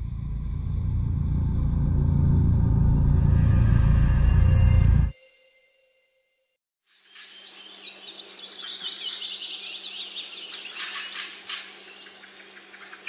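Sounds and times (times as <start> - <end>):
steady low hum: 0.0 - 5.1
small birds chirping: 7.0 - 13.0.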